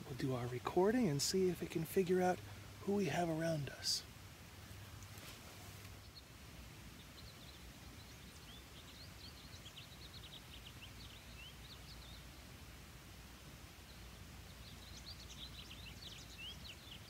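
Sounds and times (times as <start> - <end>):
goldfinch chirping: 7.0 - 12.3, 13.9 - 17.0.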